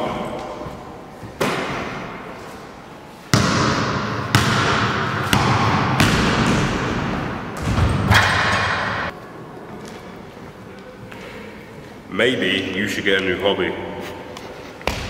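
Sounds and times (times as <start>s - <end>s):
basketball bouncing on hall floor: 3.3s - 9.1s, 14.8s - 15.0s.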